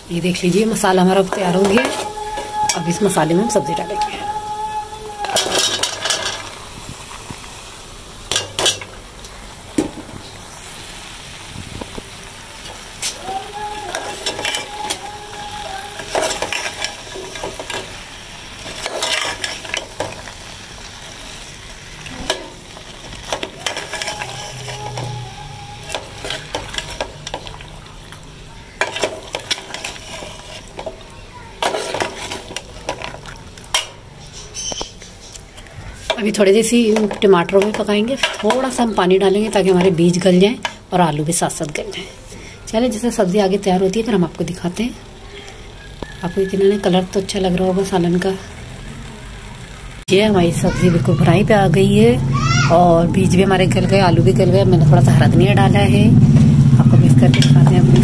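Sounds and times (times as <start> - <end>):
masala sizzling: 0.0 - 58.0
metal spatula scraping pot: 1.3 - 4.3, 5.3 - 6.6, 12.7 - 20.3, 22.1 - 27.7, 28.8 - 35.3, 36.0 - 40.8, 57.1 - 58.0.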